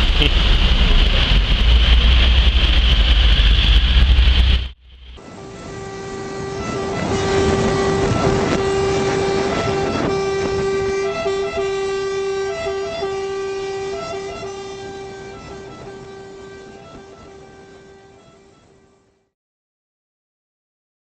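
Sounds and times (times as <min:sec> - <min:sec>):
rough vehicle noise: 0:00.0 - 0:18.2
emergency vehicle siren: 0:05.2 - 0:19.3.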